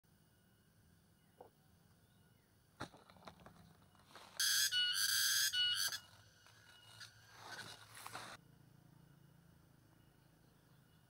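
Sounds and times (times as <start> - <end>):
faint steady insect tones: 0.0 - 11.0
loud buzzy insect call: 4.4 - 10.0.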